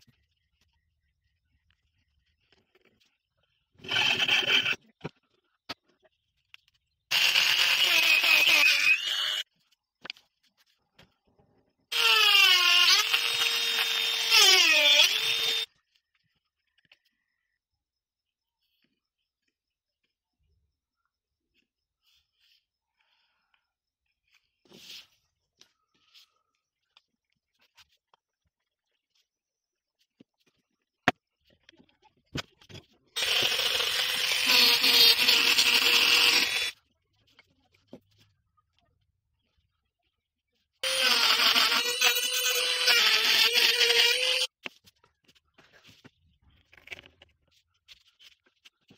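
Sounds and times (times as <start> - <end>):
rotary tool whining on wood: 3.8 - 4.9, 7.1 - 9.5, 11.9 - 15.7, 33.2 - 36.8, 40.8 - 44.6.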